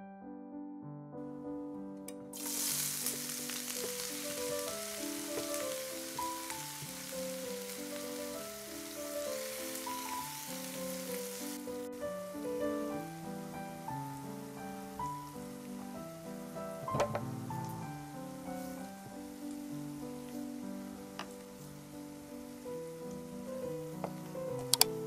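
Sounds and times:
soft piano music: 0.0 - 25.0
onion sizzling in oil: 2.4 - 23.8.

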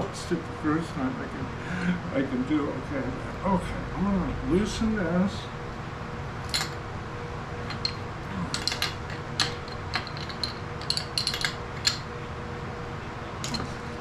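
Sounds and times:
faint steady hum: 0.0 - 14.0
metal clinks and taps: 6.5 - 6.8, 7.7 - 12.0.

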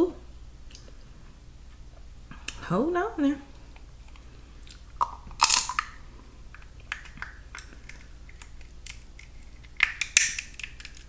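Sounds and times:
shells cracking: 4.1 - 11.0.

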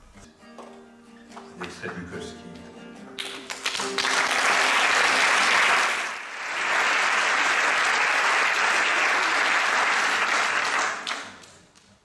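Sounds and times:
audience applauding: 3.2 - 11.6.

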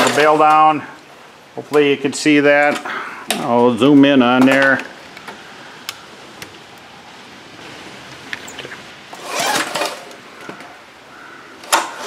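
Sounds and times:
lawn mower engine turning over: 0.0 - 0.8, 8.1 - 10.6.

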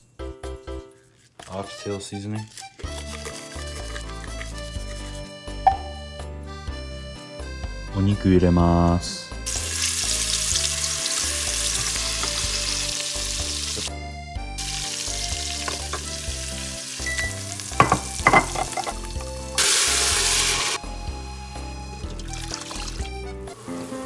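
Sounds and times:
tap water running into a cup: 2.8 - 4.8, 9.5 - 13.9, 14.7 - 19.0, 19.6 - 20.8, 22.0 - 24.0
meat sizzling in a pot: 9.4 - 14.0, 14.6 - 20.8, 22.0 - 24.0
metal tongs clinking: 17.0 - 19.1.

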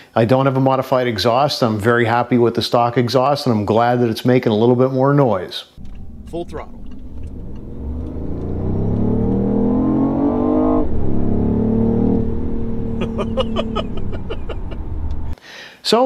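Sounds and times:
car engine accelerating: 5.8 - 15.4.

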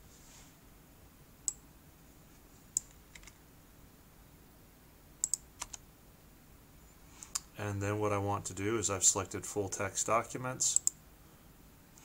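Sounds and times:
faint room hiss: 0.0 - 12.0
mouse and keyboard clicks: 2.8 - 3.4.

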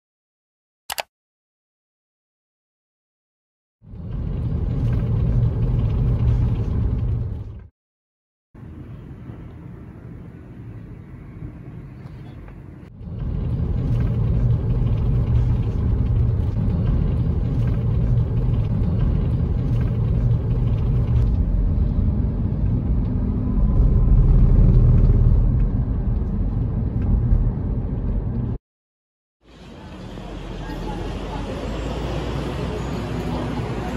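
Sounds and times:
car driving rumble from inside: 3.9 - 7.7, 12.0 - 28.6
distant city traffic hum: 8.6 - 28.6, 29.5 - 33.9.

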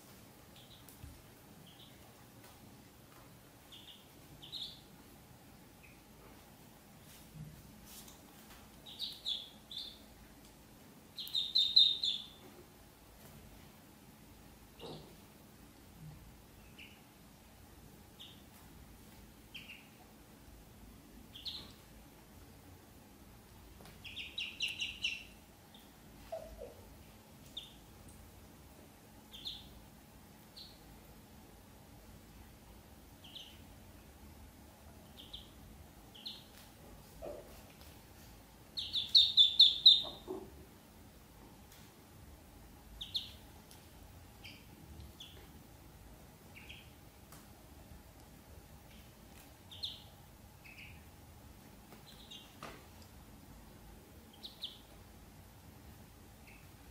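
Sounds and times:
ducklings peeping: 0.5 - 2.3, 3.6 - 4.9, 5.7 - 6.2, 8.7 - 10.2, 11.1 - 12.5, 14.7 - 15.2, 16.5 - 17.2, 18.1 - 18.6, 19.4 - 20.1, 21.2 - 21.9, 23.8 - 28.0, 29.3 - 31.0, 33.1 - 34.2, 34.8 - 37.9, 38.6 - 40.6, 42.8 - 43.8, 44.4 - 45.5, 46.4 - 47.1, 48.8 - 51.2, 51.9 - 53.1, 54.2 - 55.1, 56.3 - 56.9.

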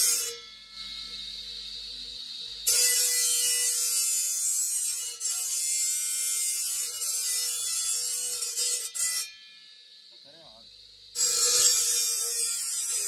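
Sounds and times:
cutting disc grinding stone: 2.6 - 9.6, 11.2 - 13.0.

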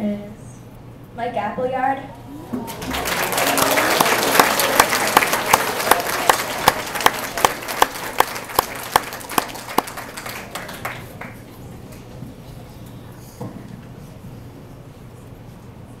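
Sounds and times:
students applauding: 2.4 - 11.5
loud clapping close by: 2.6 - 11.4.

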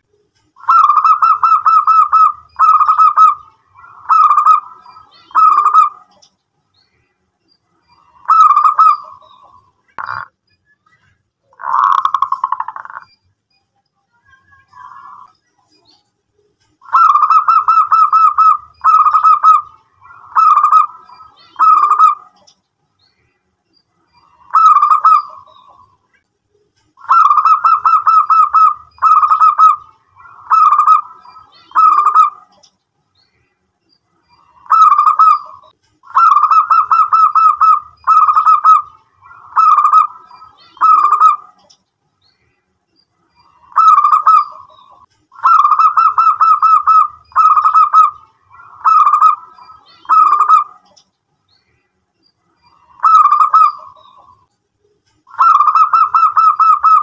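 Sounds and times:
dove cooing: 0.6 - 6.2, 8.0 - 10.3, 16.8 - 22.5, 24.3 - 25.9, 27.0 - 32.6, 34.4 - 41.7, 43.6 - 51.0, 52.7 - 54.4, 55.3 - 57.0.

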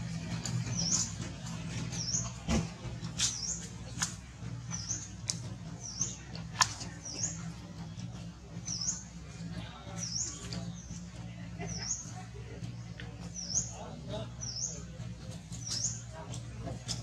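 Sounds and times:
steady low hum: 0.0 - 17.0
high chirping calls: 0.5 - 2.4, 4.7 - 7.6, 8.6 - 12.2, 13.2 - 16.2.

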